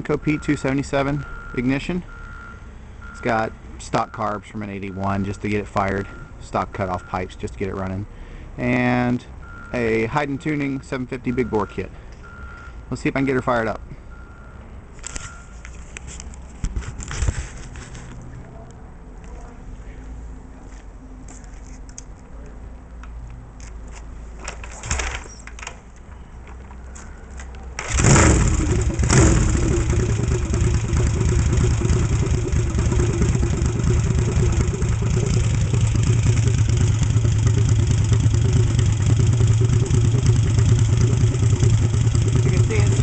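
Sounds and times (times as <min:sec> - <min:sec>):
motorcycle engine starting and running: 0:27.3 - 0:43.0
engine knocks: 0:27.8 - 0:43.0.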